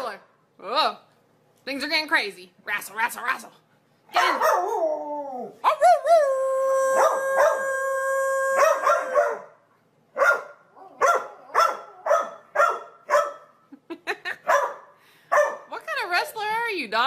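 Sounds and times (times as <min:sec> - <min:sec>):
dog barking: 0:04.1 - 0:04.8, 0:08.6 - 0:09.6, 0:10.2 - 0:13.6, 0:14.4 - 0:15.7
dog howling: 0:04.2 - 0:09.6.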